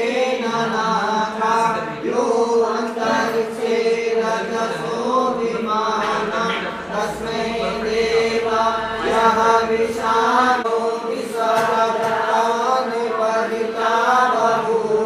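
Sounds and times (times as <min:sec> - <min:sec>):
person chanting: 0:00.0 - 0:15.0
held drone note: 0:03.1 - 0:11.2.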